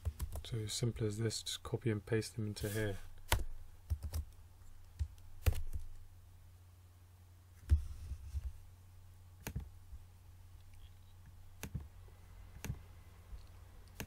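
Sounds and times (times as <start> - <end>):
low steady hum: 0.0 - 14.0
mouse and keyboard clicks: 13.4 - 14.0.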